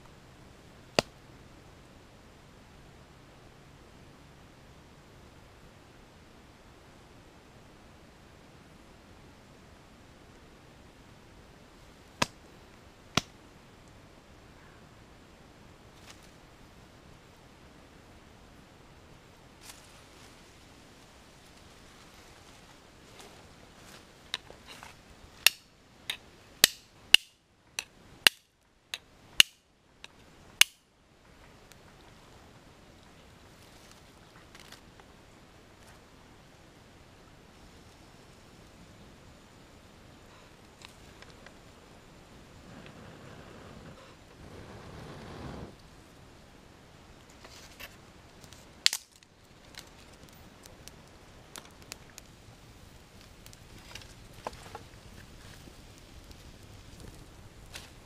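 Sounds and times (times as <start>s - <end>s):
fire crackling and popping: 0.9s - 1.2s, 11.7s - 14.0s, 19.6s - 32.3s, 40.4s - 58.0s
sharp loud snap: 26.6s - 27.4s, 29.4s - 29.7s, 30.6s - 30.9s.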